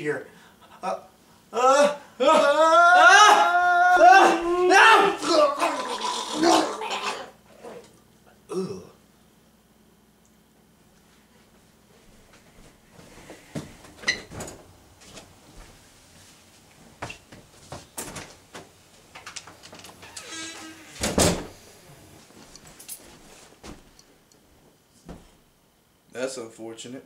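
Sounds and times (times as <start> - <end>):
door rattling: 19.2 - 21.6
door banging: 20.0 - 21.6.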